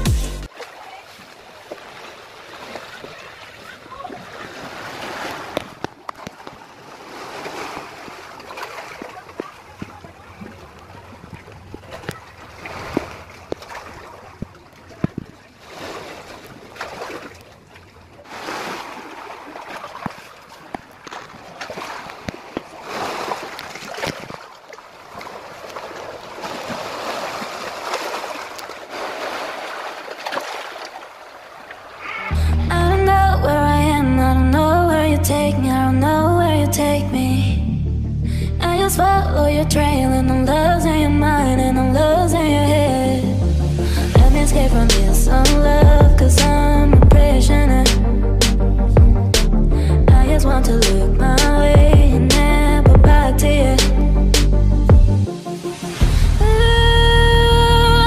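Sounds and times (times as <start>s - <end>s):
sea waves splashing over rocks: 0.5s - 32.1s.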